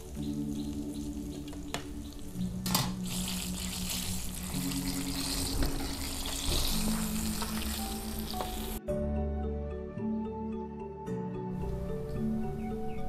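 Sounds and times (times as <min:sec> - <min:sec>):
chicken deep-frying in oil: 0:00.0 - 0:08.8
soft background music: 0:00.0 - 0:13.0.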